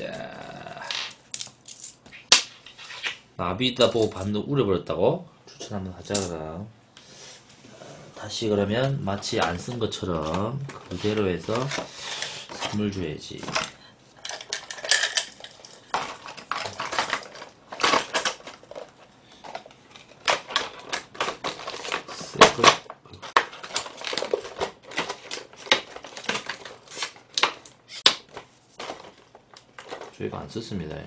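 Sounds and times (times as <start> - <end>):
plastic packaging crackling: 14.4 - 30.3.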